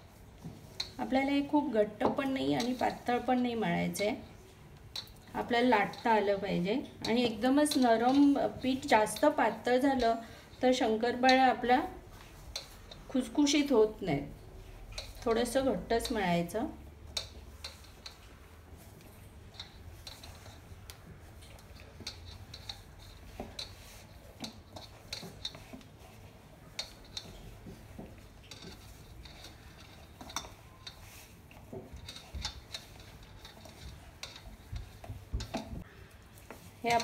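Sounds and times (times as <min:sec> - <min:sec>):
hands kneading dough in metal bowl: 0:00.0 - 0:37.0.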